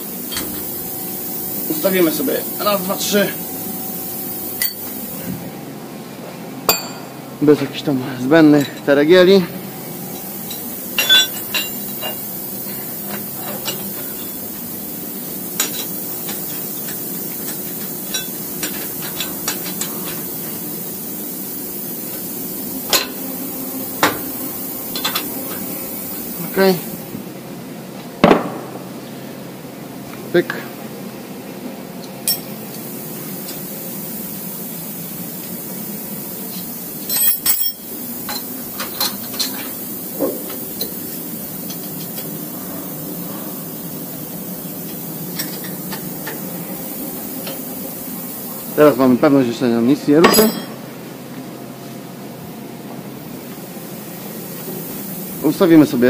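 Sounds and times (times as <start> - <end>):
machine hum: 0.0 - 50.0
metal tools clinking on steel: 8.5 - 8.9, 10.5 - 12.2, 32.2 - 32.5, 37.1 - 39.6, 50.2 - 50.8
metal wrenches clinking: 50.3 - 50.7.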